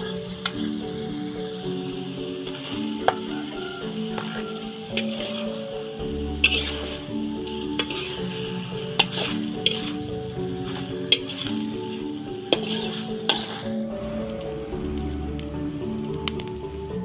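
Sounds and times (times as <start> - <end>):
spatula scraping metal wok: 0.0 - 14.7
eggs sizzling in a wok: 0.0 - 17.0.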